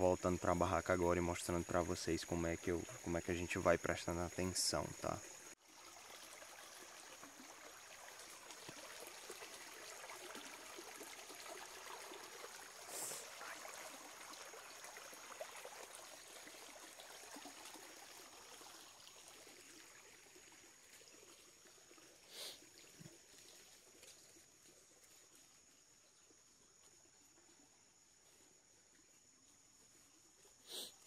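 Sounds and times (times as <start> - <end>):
insects trilling: 0.0 - 5.6, 20.5 - 31.0.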